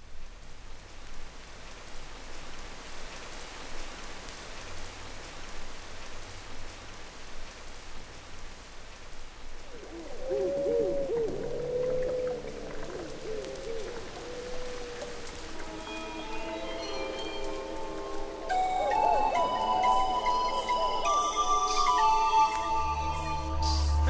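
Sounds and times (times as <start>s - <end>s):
steady hiss: 0.0s - 24.0s
hoot-like tones: 9.7s - 15.7s, 18.5s - 24.0s
held synth tone: 18.5s - 24.0s.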